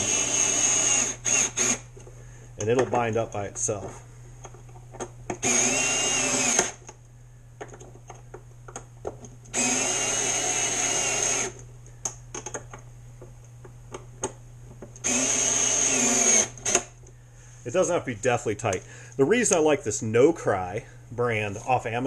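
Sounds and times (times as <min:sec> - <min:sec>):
electric screwdriver whining: 0:00.0 - 0:01.9, 0:05.4 - 0:06.9, 0:09.5 - 0:11.6, 0:15.0 - 0:17.0.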